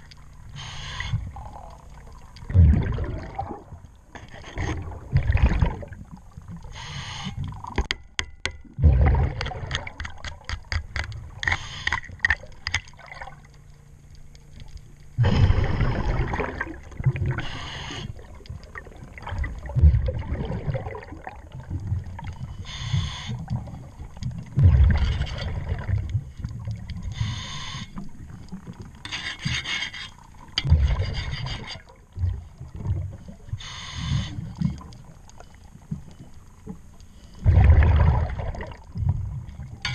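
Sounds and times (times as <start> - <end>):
scraping underwater: 0.0 - 7.9, 8.7 - 13.6, 14.4 - 39.9
scuba regulator bubble bursts: 2.5 - 3.7, 8.8 - 10.2, 15.2 - 17.5, 18.8 - 21.6, 37.5 - 38.8.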